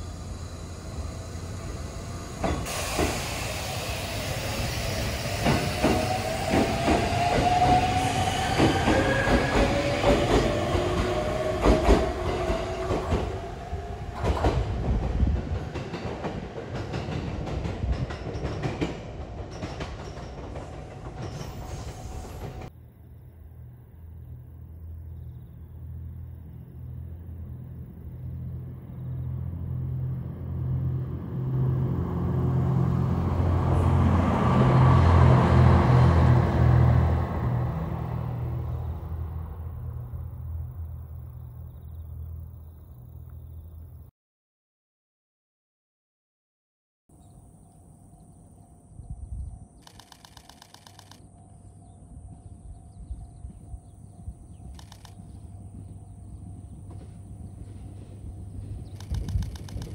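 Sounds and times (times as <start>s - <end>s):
train passing: 0.0s - 44.1s, 47.2s - 59.9s
wind on microphone: 13.0s - 16.1s, 49.0s - 49.8s, 55.8s - 59.9s.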